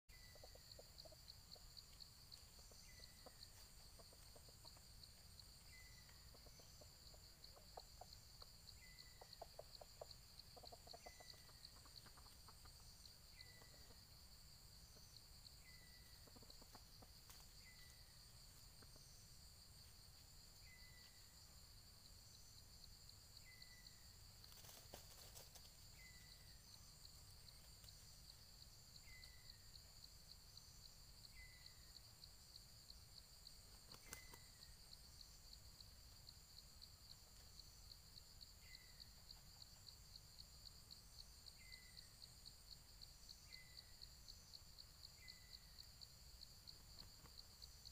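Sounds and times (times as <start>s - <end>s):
soft bird clucking: 0.1s - 14.2s, 14.9s - 18.0s.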